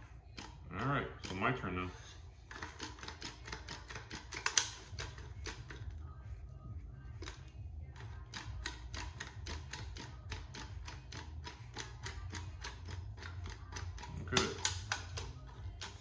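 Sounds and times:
toy ratchet clicking: 2.5 - 6.0, 7.2 - 16.0.

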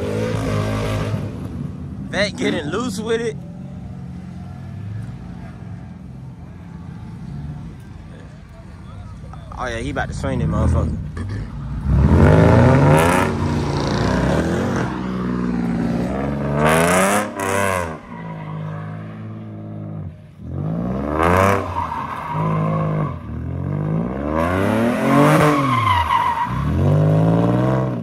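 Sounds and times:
tires squealing: 11.6 - 28.0
car engine revving hard: 11.7 - 15.0, 15.8 - 18.0, 22.5 - 25.9.

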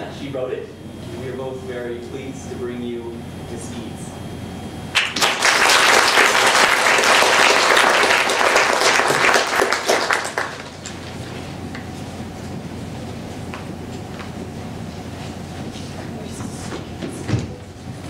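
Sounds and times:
low room noise: 0.0 - 18.0
audience applauding: 5.0 - 11.8.

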